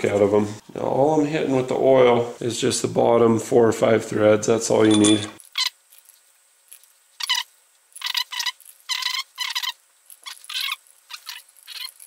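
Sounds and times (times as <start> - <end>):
metal bolts clinking: 4.9 - 5.4.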